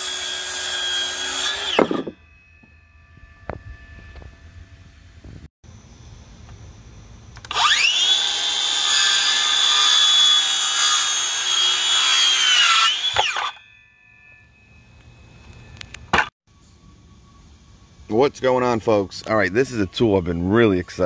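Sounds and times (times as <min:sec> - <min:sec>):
circular saw cutting wood: 0:00.0 - 0:02.2, 0:07.4 - 0:13.7.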